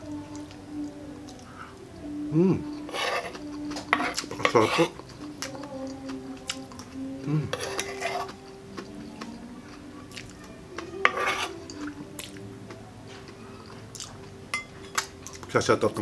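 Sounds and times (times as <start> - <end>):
metal spoon clicking and scraping: 2.9 - 5.6, 7.5 - 8.4, 11.0 - 11.9
chewing and mouth noises: 3.2 - 14.4.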